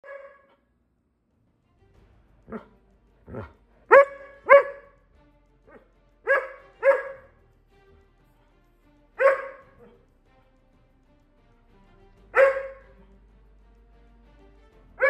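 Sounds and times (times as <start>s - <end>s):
dog barking sharply: 0.0s - 0.6s, 3.3s - 4.9s, 6.3s - 7.3s, 9.2s - 10.0s, 12.4s - 12.8s
dog yipping: 0.0s - 0.6s, 3.3s - 4.9s, 6.3s - 7.3s, 9.2s - 10.0s, 12.4s - 12.8s
dog grumbling calls: 3.3s - 3.6s.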